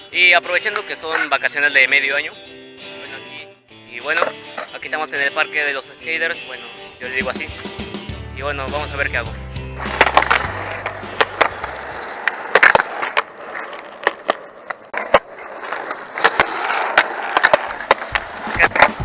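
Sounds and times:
skateboard wheels rolling on concrete: 0:00.0 - 0:02.0, 0:06.3 - 0:19.0
skateboard clacking on ground: 0:00.5 - 0:01.4, 0:09.8 - 0:19.0.

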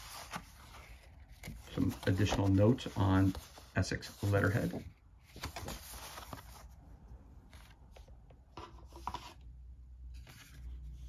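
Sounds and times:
paper rustling and sliding: 0:00.0 - 0:06.8, 0:10.1 - 0:11.0.

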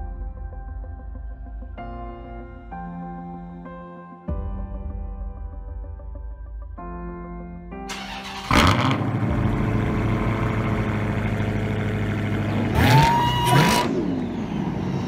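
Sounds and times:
ambient music chords: 0:00.0 - 0:13.0
car engine revving: 0:07.9 - 0:15.0
car engine starting and idling: 0:07.9 - 0:15.0.

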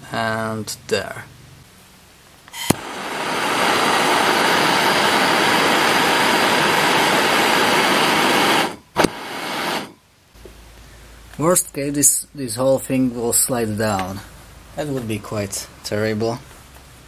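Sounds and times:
gas blowtorch hissing: 0:02.6 - 0:10.0
blowtorch switch click: 0:09.0 - 0:09.9.

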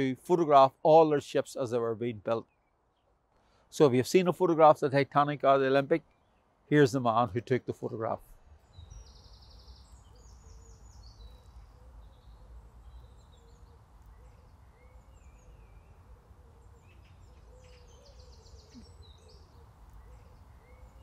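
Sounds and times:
small songbirds trilling: 0:08.5 - 0:21.0.

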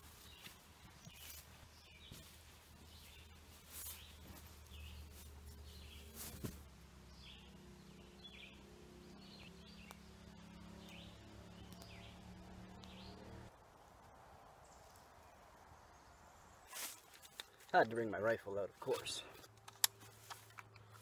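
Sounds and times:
bird chirping: 0:00.0 - 0:13.5.

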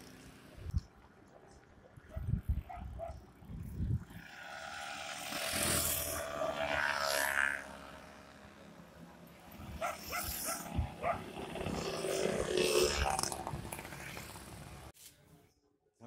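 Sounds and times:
passing motor vehicle: 0:02.2 - 0:14.9.

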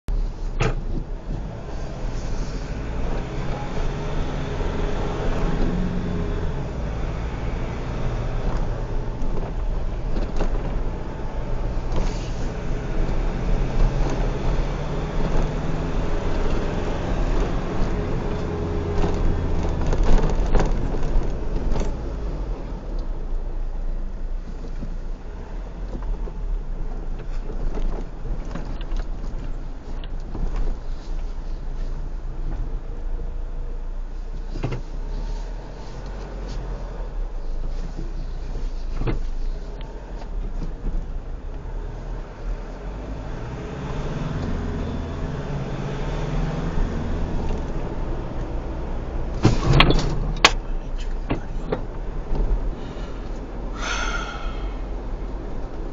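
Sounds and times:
low road rumble: 0:00.0 - 0:55.9
vehicle engine revving while driving: 0:01.0 - 0:23.3, 0:34.5 - 0:55.9.

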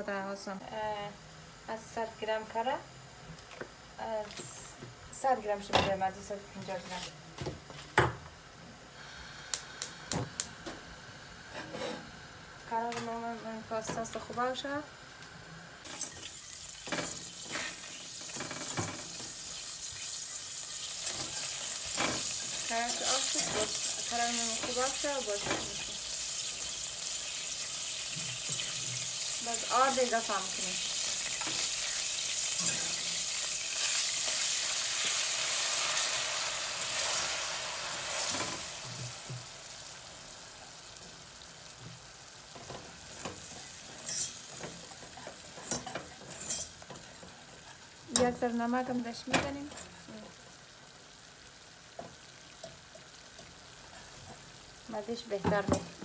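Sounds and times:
butter sizzling in a saucepan: 0:08.0 - 0:56.0
whisk scraping and tapping pan: 0:43.9 - 0:47.0.

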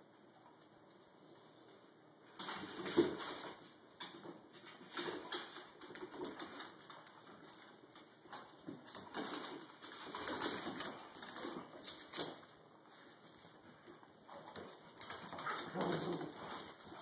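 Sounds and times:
paws scuffling on tile floor: 0:00.1 - 0:17.0
dogs play growling: 0:13.8 - 0:17.0.

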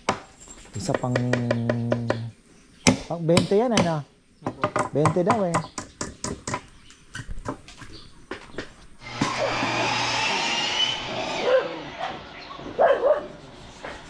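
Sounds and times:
knocks: 0:00.9 - 0:02.3
power tool running: 0:09.0 - 0:12.8
dog barking: 0:09.4 - 0:09.7, 0:11.4 - 0:13.4.

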